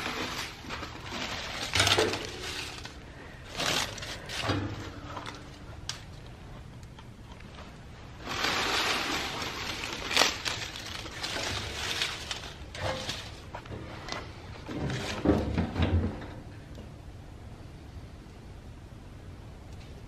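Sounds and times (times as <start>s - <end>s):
dry leaves rustling and crunching: 0.0s - 6.2s, 8.1s - 13.6s.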